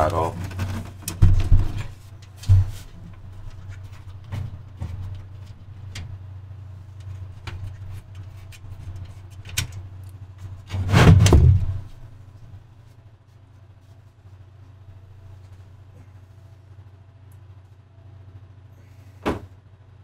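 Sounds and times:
computer case thump: 10.7 - 11.8, 19.2 - 19.5.

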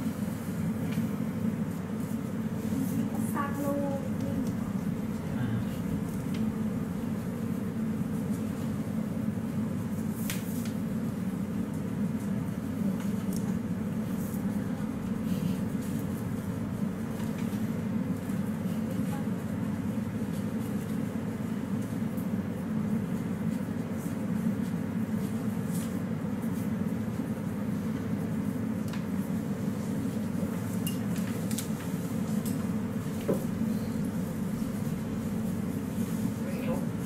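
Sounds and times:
low background hum: 0.0 - 37.0.

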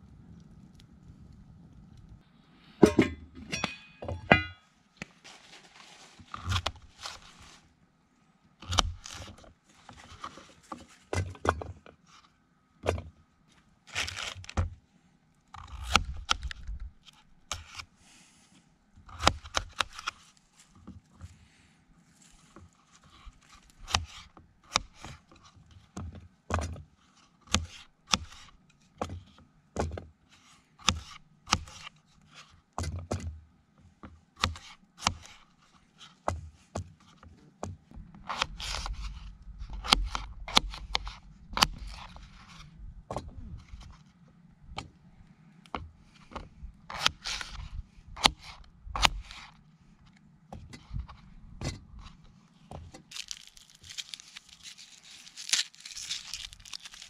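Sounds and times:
chunks dropped into steel pot: 2.8 - 4.6
metal pot lid clinking: 2.8 - 4.6.

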